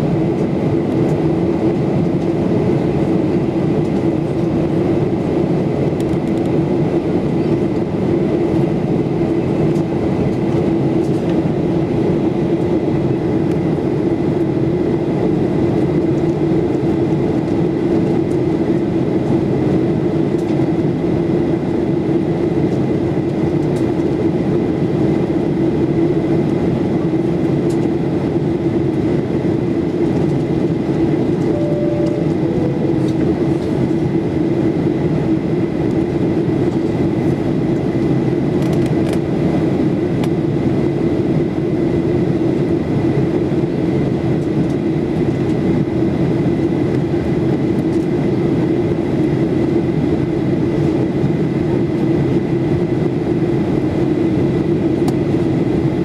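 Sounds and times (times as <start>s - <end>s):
airflow rush in cabin: 0.0s - 56.0s
jet engine hum: 0.0s - 56.0s
faint high whine: 31.4s - 33.8s
two-note cabin chime: 31.5s - 33.5s.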